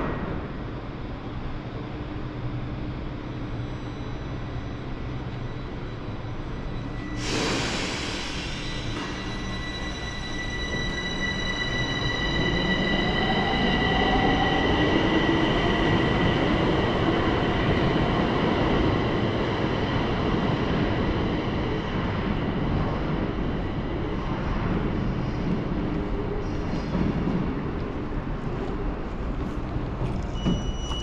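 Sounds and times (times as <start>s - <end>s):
metro train whine speeding up: 0.0s - 31.0s
train running rumble: 21.8s - 31.0s.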